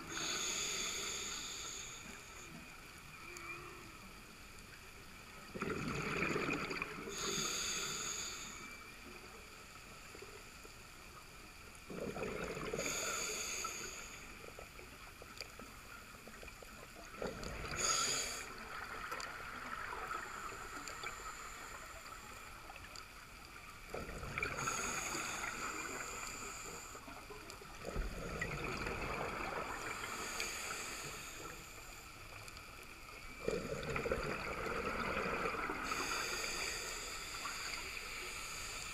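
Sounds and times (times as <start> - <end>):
regulator hiss: 0.0 - 2.8, 7.1 - 10.6, 12.8 - 14.6, 17.7 - 18.8, 24.5 - 27.4, 29.8 - 32.4, 35.8 - 38.9
exhaled bubbles gurgling: 5.4 - 7.7, 11.8 - 13.4, 16.3 - 21.2, 23.8 - 31.2, 33.2 - 38.4.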